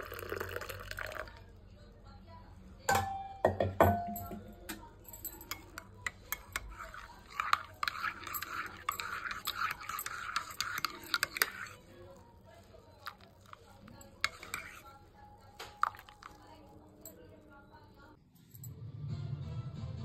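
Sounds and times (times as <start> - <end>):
spoon whisking coffee in cup: 0.0 - 1.4, 4.2 - 18.0
spoon clinking on cup: 2.9 - 11.8, 13.0 - 15.0, 15.6 - 17.3.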